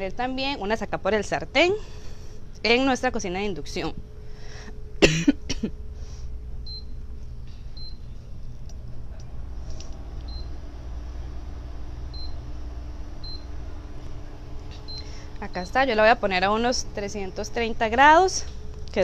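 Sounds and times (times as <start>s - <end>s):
steady low hum: 0.0s - 19.0s
cooktop touch control beeps: 6.6s - 7.0s, 7.8s - 8.0s, 12.1s - 12.4s, 13.2s - 13.5s, 14.8s - 15.8s.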